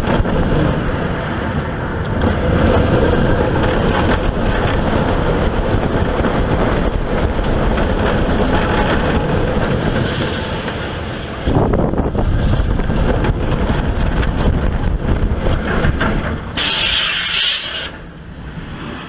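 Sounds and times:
wind on microphone: 0:00.0 - 0:17.0
roller coaster rumbling on track: 0:00.0 - 0:19.0
short burst of hiss: 0:16.6 - 0:18.0.

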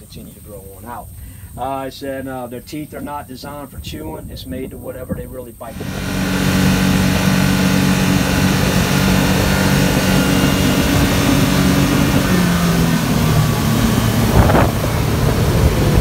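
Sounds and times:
wind: 0:00.0 - 0:16.0
outboard motor running: 0:05.7 - 0:16.0
water spray rushing: 0:05.7 - 0:16.0.

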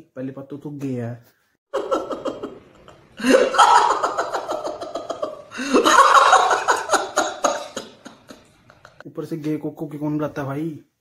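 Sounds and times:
man laugh-crying: 0:01.8 - 0:09.0.

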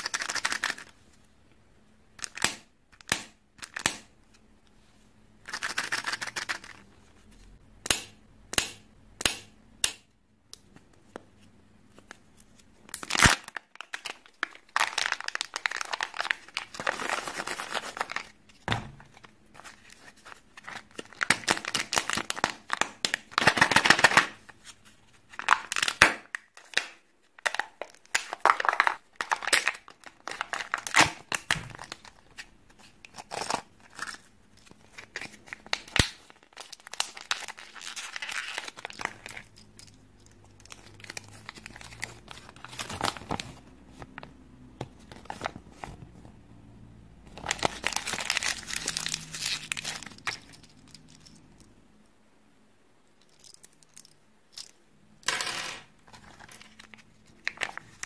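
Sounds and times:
foil and plastic wrappers crinkling: 0:12.9 - 0:44.2, 0:47.3 - 0:51.4, 0:56.0 - 0:58.0.

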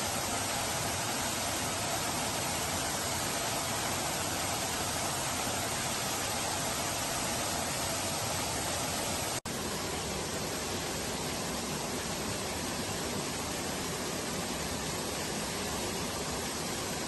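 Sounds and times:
waterfall rushing and splashing: 0:00.0 - 0:17.0.

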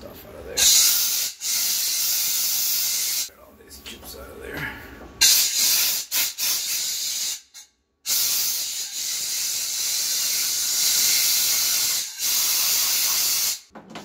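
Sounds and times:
compressed air blow gun hissing: 0:00.6 - 0:03.3, 0:05.2 - 0:13.7.

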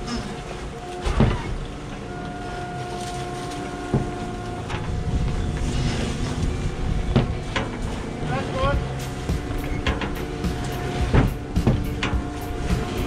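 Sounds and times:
boat engine running: 0:00.0 - 0:13.0
sharp knocks: 0:09.3 - 0:12.9.

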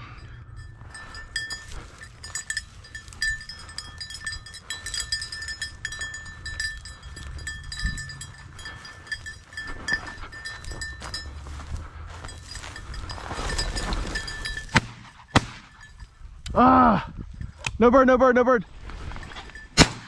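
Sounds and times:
dog bell jingling: 0:00.0 - 0:16.4, 0:19.2 - 0:19.8
grass rustling: 0:00.0 - 0:16.4, 0:18.7 - 0:20.0
wind: 0:00.0 - 0:20.0.

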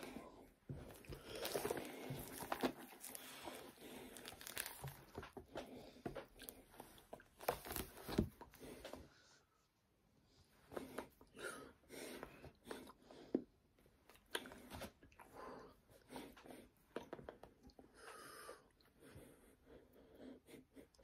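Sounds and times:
rustling of book handling: 0:00.7 - 0:09.1.

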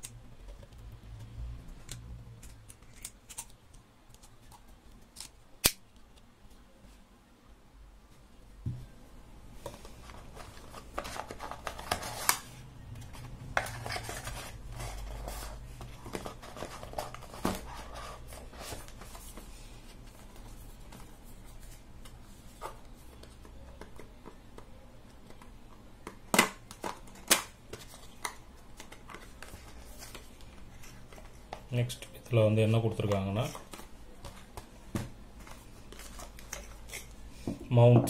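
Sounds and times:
cardboard packaging rustling: 0:09.6 - 0:23.3.

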